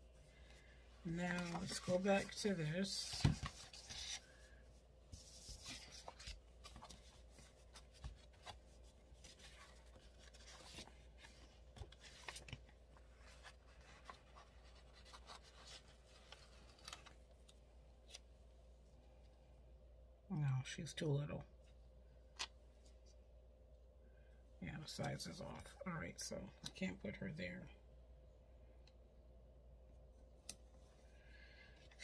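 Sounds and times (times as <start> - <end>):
paper rustling: 1.1 - 4.5, 5.1 - 18.2.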